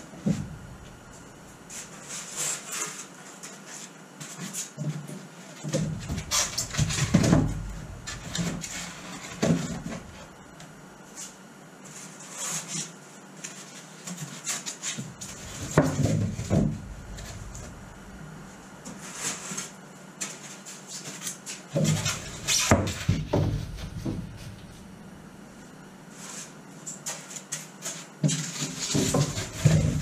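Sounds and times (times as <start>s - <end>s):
scraping and knocks on wood: 0.1s - 10.4s, 11.2s - 24.9s, 26.2s - 30.0s.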